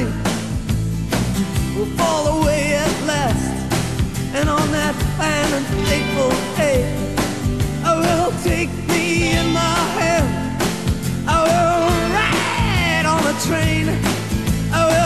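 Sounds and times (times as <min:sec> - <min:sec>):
steady drum beat: 0:00.0 - 0:15.0
person singing: 0:04.4 - 0:10.6, 0:11.2 - 0:15.0.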